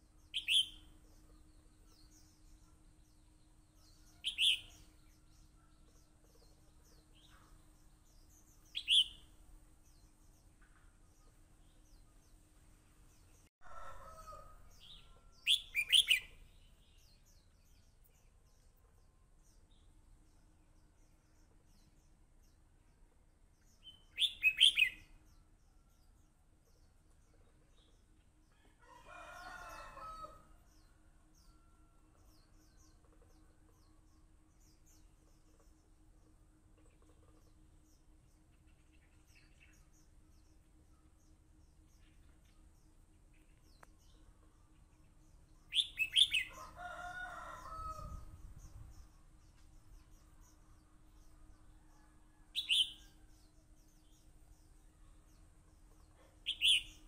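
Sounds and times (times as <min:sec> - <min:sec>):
bird chirping phrases: 0:00.0 - 0:12.4, 0:14.0 - 0:22.7, 0:23.7 - 0:25.5, 0:36.9 - 0:57.0.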